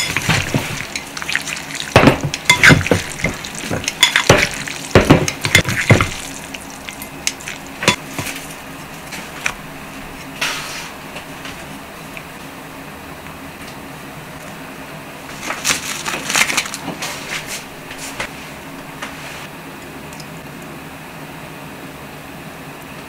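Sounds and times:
noodles slapping and squelching: 0:00.0 - 0:08.5, 0:15.3 - 0:18.3.

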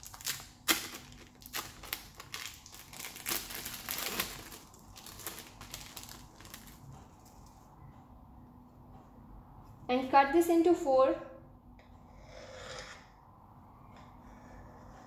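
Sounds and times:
plastic film crinkling: 0:00.0 - 0:07.6.

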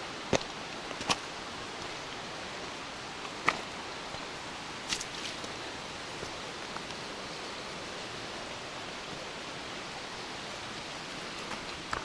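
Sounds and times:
forest rushing noise: 0:00.0 - 0:12.0
footsteps snapping twigs: 0:04.9 - 0:05.5.

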